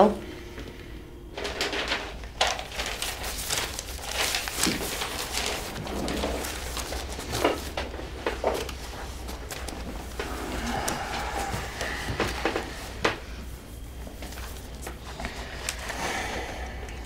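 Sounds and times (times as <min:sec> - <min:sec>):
paper rustling and crinkling: 0:01.4 - 0:16.7.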